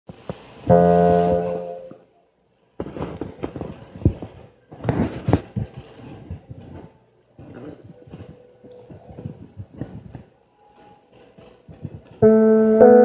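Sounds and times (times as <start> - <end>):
electronic organ chord: 0.7 - 2.0, 12.2 - 13.0.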